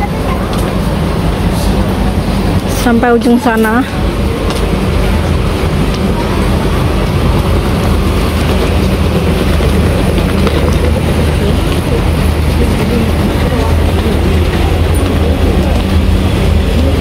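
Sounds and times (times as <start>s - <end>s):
indistinct voices: 0.0s - 17.0s
traffic: 0.0s - 17.0s.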